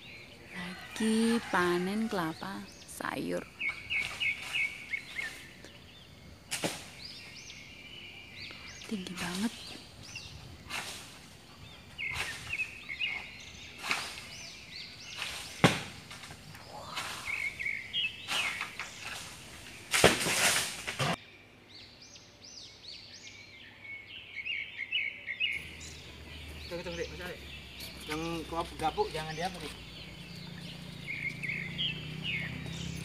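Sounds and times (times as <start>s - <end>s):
birds chirping: 0.0s - 33.0s
coconuts thumping as they land: 6.5s - 7.0s, 15.3s - 16.4s, 19.9s - 21.2s.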